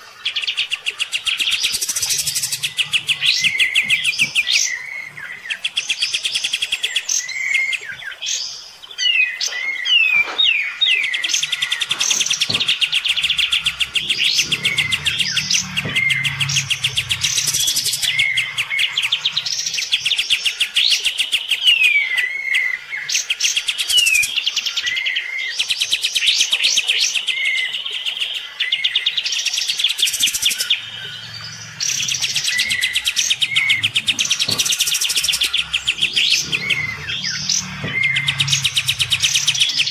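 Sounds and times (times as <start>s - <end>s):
bird singing trills and whistles: 0.0s - 27.7s.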